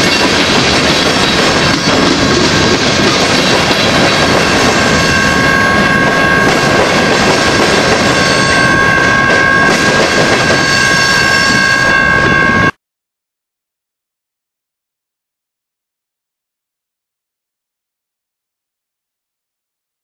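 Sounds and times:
freight train wheels clacking: 0:00.0 - 0:12.7
steady high tone: 0:00.0 - 0:12.8.

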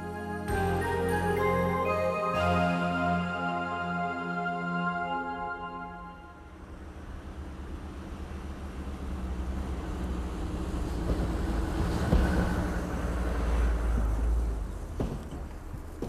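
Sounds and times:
vehicle engine rumble: 0:06.0 - 0:16.0.

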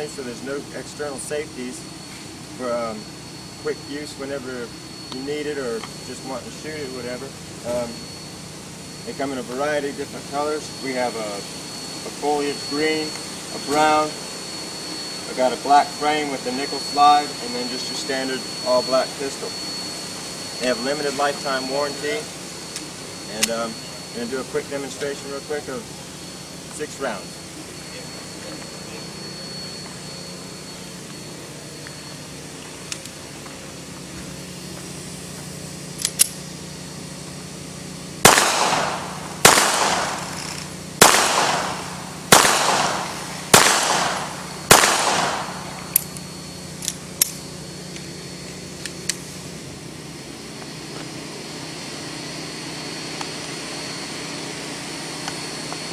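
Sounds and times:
pistol shots echoing: 0:38.3 - 0:40.4, 0:41.0 - 0:45.8.

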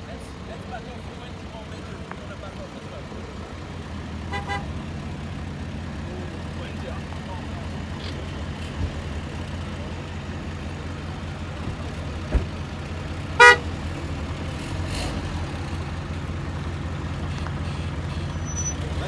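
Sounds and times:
vehicle engine idling: 0:00.0 - 0:19.0
vehicle horn toot: 0:04.3 - 0:04.8, 0:13.4 - 0:13.8.

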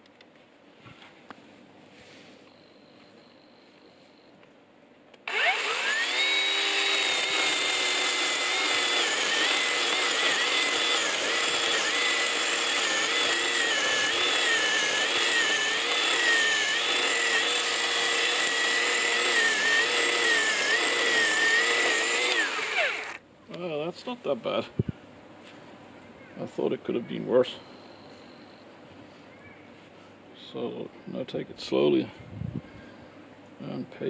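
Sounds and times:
electric chainsaw cutting a log: 0:05.2 - 0:23.2.

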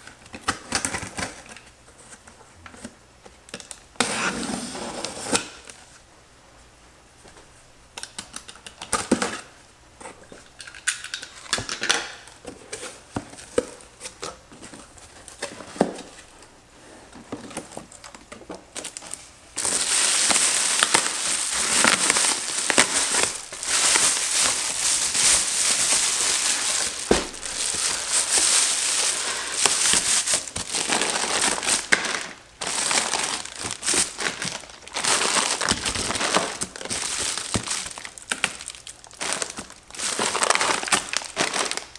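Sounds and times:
crinkling foil liner: 0:17.5 - 0:41.9.

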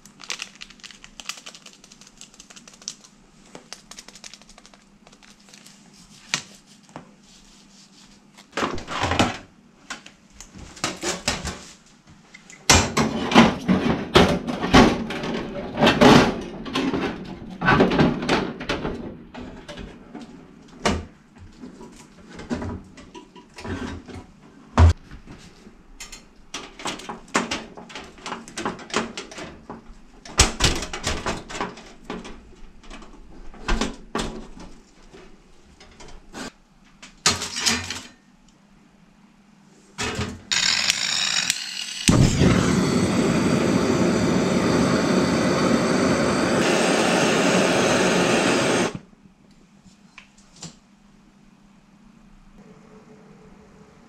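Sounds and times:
gas flame hissing: 0:42.0 - 0:49.0.

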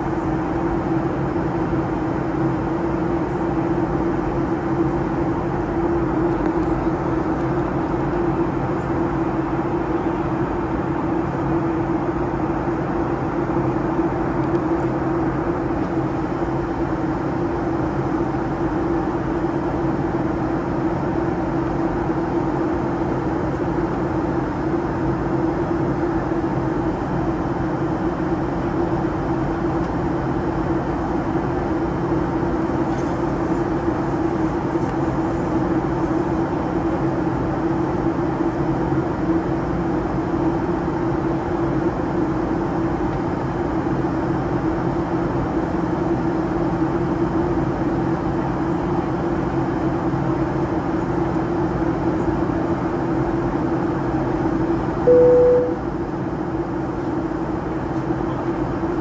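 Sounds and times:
aircraft cabin engine drone: 0:00.0 - 0:59.0
single-tone chime: 0:55.1 - 0:55.8.

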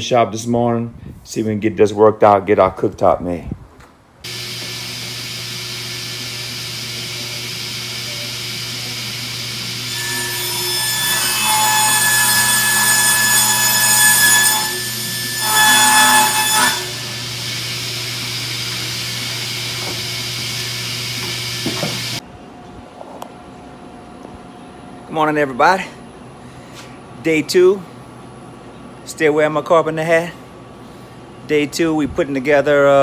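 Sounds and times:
table saw cutting: 0:04.3 - 0:22.2.

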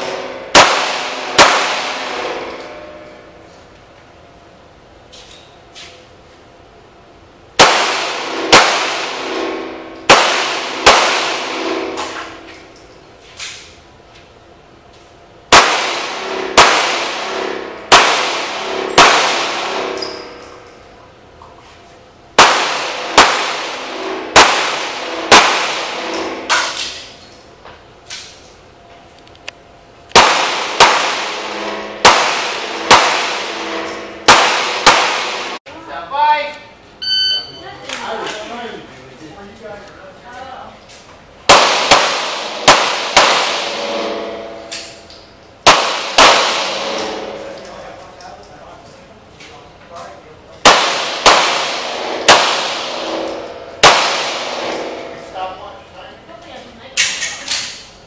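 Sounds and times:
pistol shots echoing indoors: 0:00.0 - 0:02.8, 0:07.6 - 0:12.4, 0:15.5 - 0:20.9, 0:22.3 - 0:27.0, 0:30.1 - 0:35.6, 0:41.4 - 0:48.0, 0:50.6 - 0:55.6.

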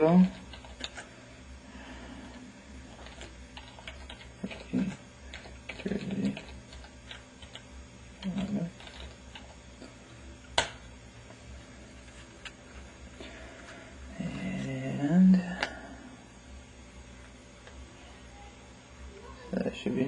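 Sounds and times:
typing on computer keyboard: 0:03.0 - 0:07.6, 0:08.2 - 0:09.5.

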